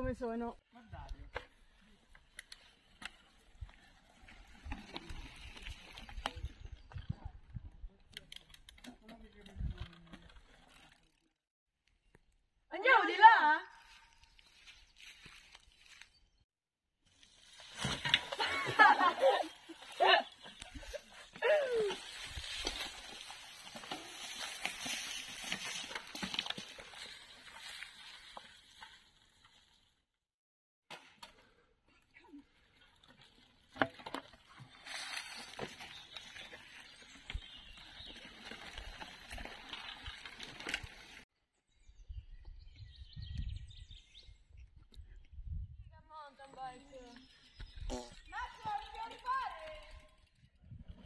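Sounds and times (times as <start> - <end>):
bike tyres rolling over leaves: 1.6 - 7.4, 14.0 - 16.2, 17.1 - 30.0, 32.5 - 41.2
birds chirping: 18.8 - 22.0, 35.5 - 39.5, 46.0 - 49.9.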